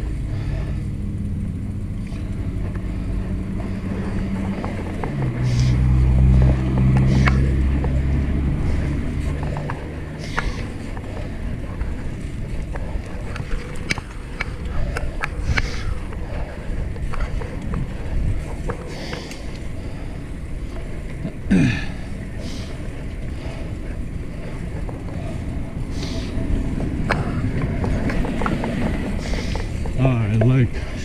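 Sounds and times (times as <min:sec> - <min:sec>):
bike tyre rumble: 0:00.0 - 0:31.0
wind buffeting microphone: 0:00.0 - 0:31.0.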